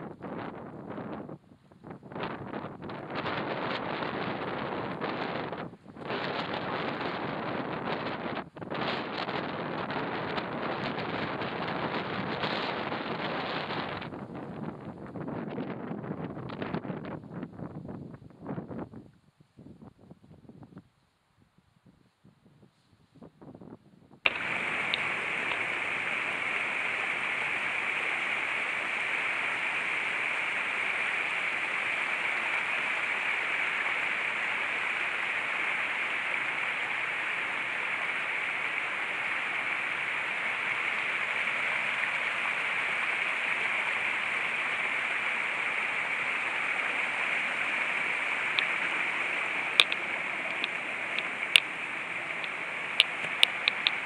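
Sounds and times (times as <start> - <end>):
sharp clicks: 24.3 - 29.5, 47.6 - 54.0.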